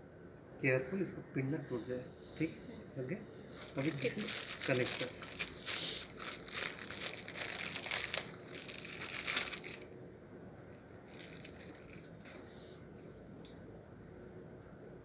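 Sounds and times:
plastic parts crinkling by hand: 3.5s - 9.9s, 10.7s - 12.4s.

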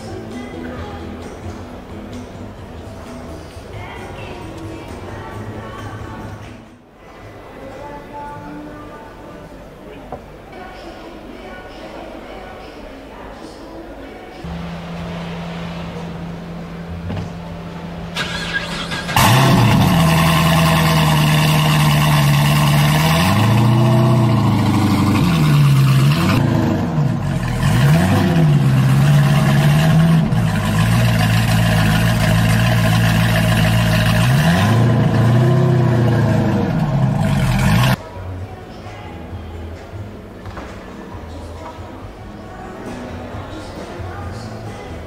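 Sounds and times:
steady low hum: 14.4s - 38.0s
car engine starting and revving: 14.5s - 38.0s.

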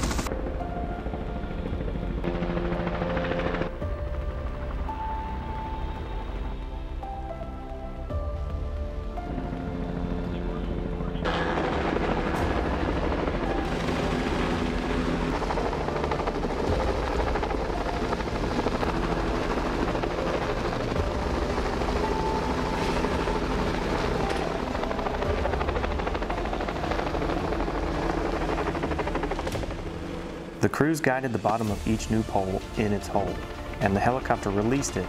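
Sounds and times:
helicopter rotor chopping: 0.0s - 6.2s, 9.3s - 35.0s.

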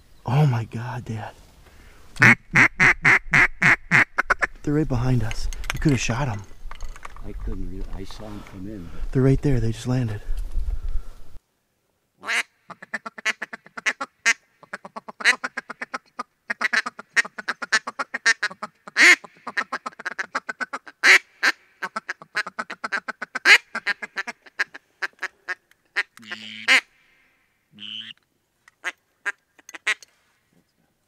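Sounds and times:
duck quacking rapidly: 2.2s - 4.5s, 12.2s - 26.9s, 27.8s - 28.2s.

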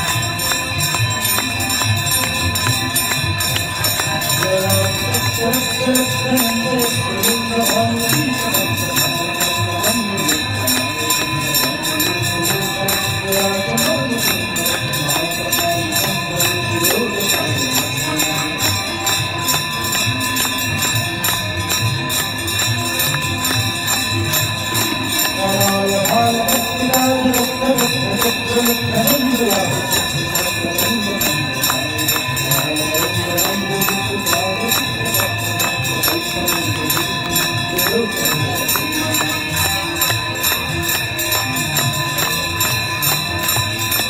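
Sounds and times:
bells ringing: 0.0s - 44.0s.

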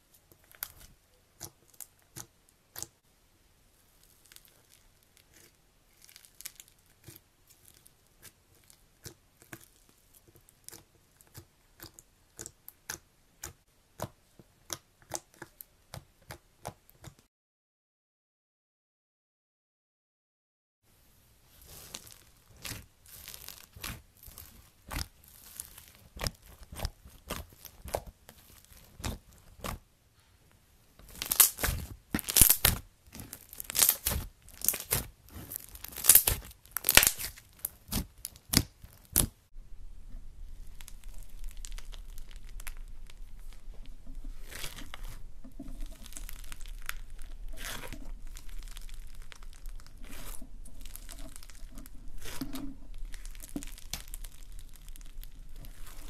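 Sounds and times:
slime crackling when squeezed: 4.0s - 9.8s, 21.6s - 29.8s, 31.0s - 39.4s, 40.6s - 43.7s, 44.4s - 56.0s.

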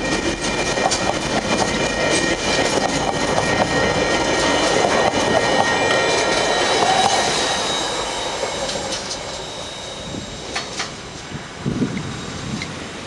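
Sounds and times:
train wheels clacking over joints: 0.0s - 9.6s
high-pitched steady tones: 0.0s - 12.6s
train rumble: 0.0s - 13.0s.

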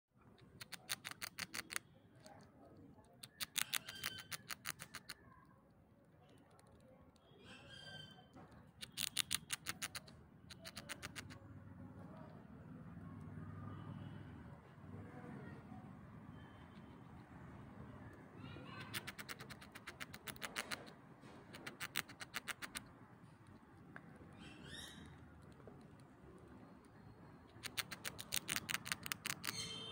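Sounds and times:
squirrel gnawing hard candy: 0.4s - 5.3s, 8.7s - 11.4s, 18.7s - 29.7s.

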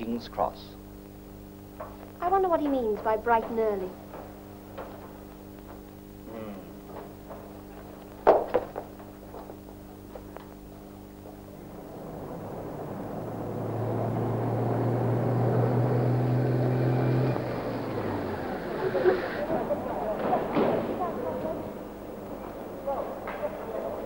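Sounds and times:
sharp knocks: 8.2s - 9.5s
traffic engine drone: 11.2s - 24.0s.

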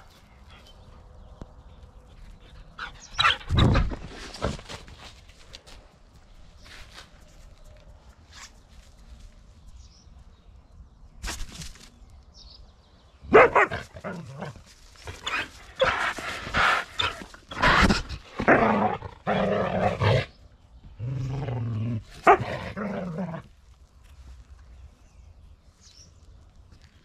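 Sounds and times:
dog barking: 13.3s - 13.9s, 22.2s - 22.5s.

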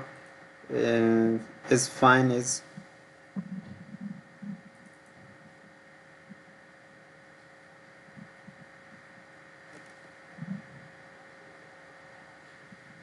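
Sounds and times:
electrical hum and hiss: 0.0s - 13.0s
soft low thumps: 2.6s - 11.1s.

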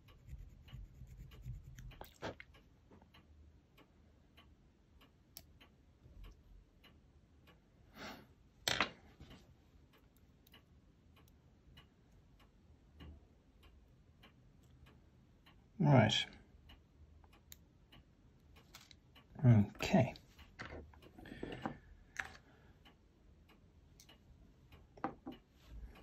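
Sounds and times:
small plastic parts clicking: 18.6s - 19.0s.

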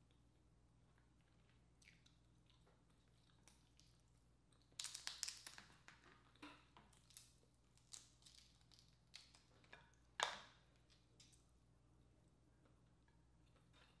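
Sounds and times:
crab shell cracking: 4.7s - 5.8s, 7.0s - 9.4s.

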